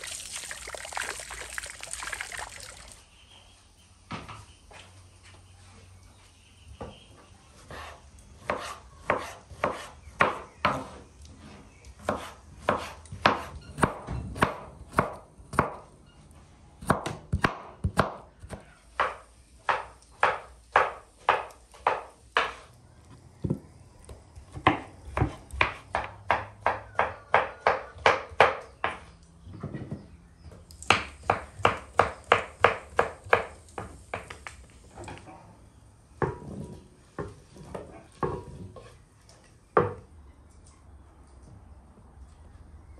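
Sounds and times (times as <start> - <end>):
knife chopping on wooden board: 7.7 - 11.0, 12.0 - 15.8, 16.8 - 22.6, 24.5 - 29.1, 30.9 - 34.4.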